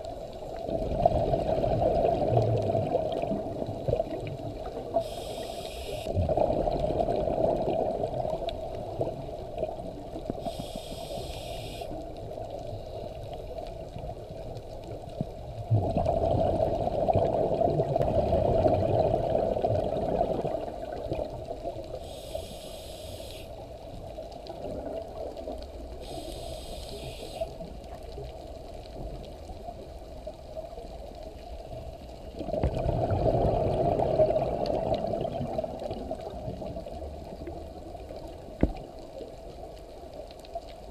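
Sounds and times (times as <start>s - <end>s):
regulator exhale bubbles rumbling: 0.0s - 12.0s, 15.5s - 23.0s, 32.3s - 38.8s
regulator hissing inhales: 5.0s - 6.1s, 10.4s - 12.0s, 22.0s - 23.6s, 26.0s - 27.5s.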